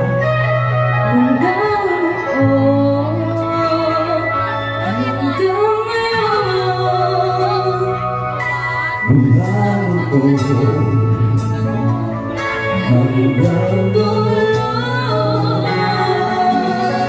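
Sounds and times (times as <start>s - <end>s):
electric guitar: 0.0s - 17.0s
low bass notes: 0.0s - 17.0s
woman singing: 1.0s - 8.8s, 12.7s - 17.0s.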